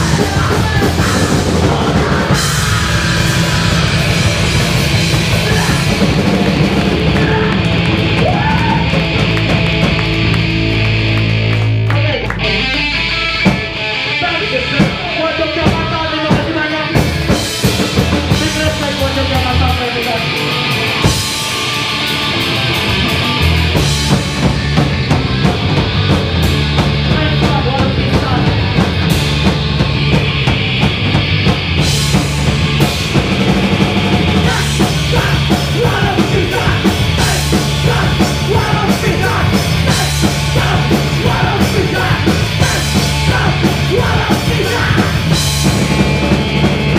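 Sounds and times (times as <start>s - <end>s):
person singing: 0.0s - 4.5s, 5.3s - 6.2s, 34.4s - 45.4s
punk rock band playing: 0.0s - 46.9s.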